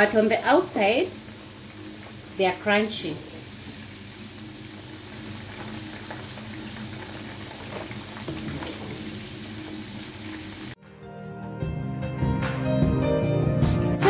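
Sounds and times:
fries sizzling in deep oil: 0.0 - 10.8
music: 10.8 - 14.0.

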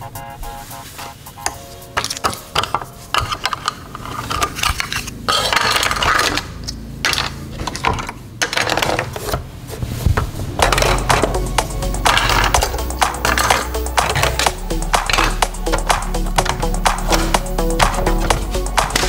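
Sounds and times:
metal toy cars clattering: 2.0 - 9.5, 10.6 - 11.4.

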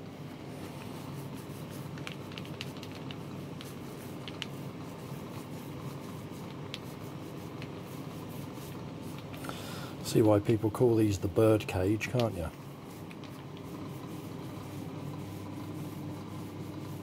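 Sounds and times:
paint roller squishing: 0.8 - 9.3.

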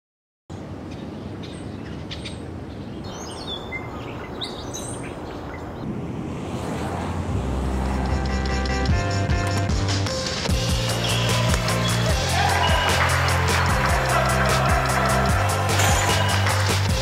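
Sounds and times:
birds chirping: 0.5 - 6.0, 10.5 - 17.0
outdoor background noise: 0.5 - 10.5
music: 7.4 - 17.0.

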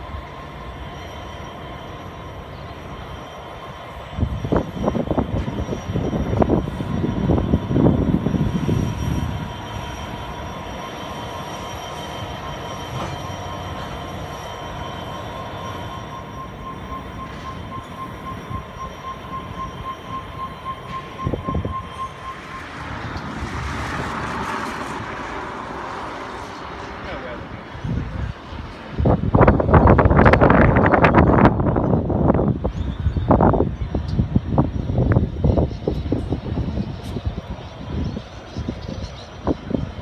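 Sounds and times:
thin wheel squeal: 0.0 - 28.2
locomotive rumble: 0.0 - 40.0
rail noise: 0.0 - 40.0.

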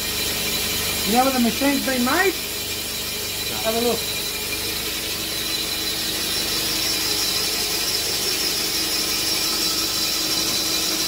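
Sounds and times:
boring machine whine: 0.0 - 11.0
high squeal: 3.0 - 11.0.

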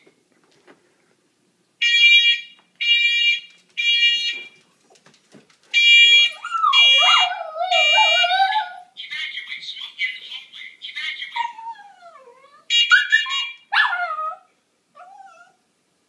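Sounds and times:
smoke alarm beeping: 1.8 - 4.6, 5.7 - 7.1
small dog howling: 6.4 - 8.9, 11.4 - 15.6.

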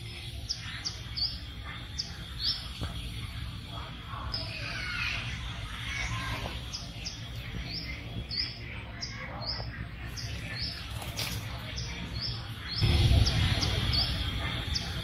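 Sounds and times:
bird chirping: 0.0 - 15.0
low background rumble: 11.9 - 15.0.

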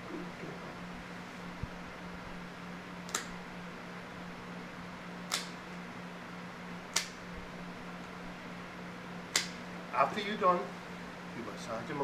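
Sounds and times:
faint steady hum: 0.0 - 12.0
nail clippers snipping toenails: 5.3 - 5.6, 9.3 - 9.6.

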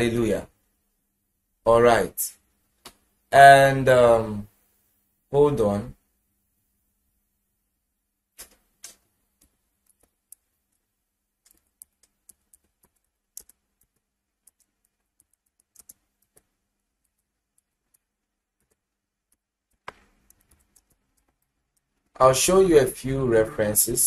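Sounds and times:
fingers clicking and tapping device: 8.4 - 22.2.

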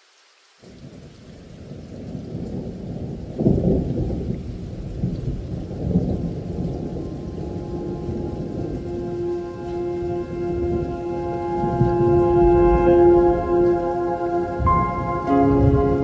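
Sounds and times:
rain: 0.0 - 16.0
thunder rumbling: 0.6 - 16.0
low synth tone: 7.4 - 16.0.

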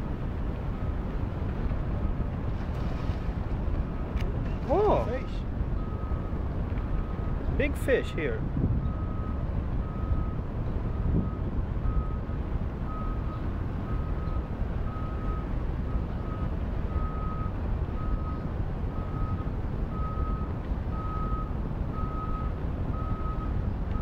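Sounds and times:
boat engine rumble: 0.0 - 24.0
water: 0.1 - 5.6.

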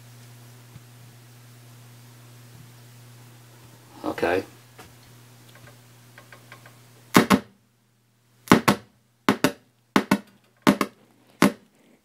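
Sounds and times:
low mains hum: 0.0 - 12.0
loud sharp speaker pops: 7.1 - 7.5, 8.5 - 11.6.

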